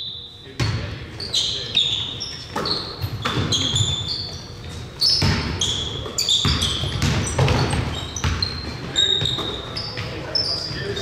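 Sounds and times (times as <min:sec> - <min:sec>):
sneakers squeaking: 0:00.0 - 0:11.0
basketball bouncing on court: 0:02.5 - 0:11.0.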